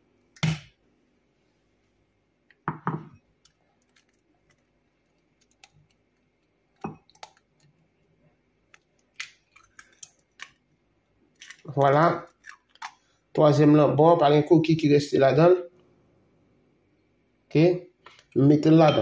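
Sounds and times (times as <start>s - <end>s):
egg knocking against glass: 2.6s - 3.2s.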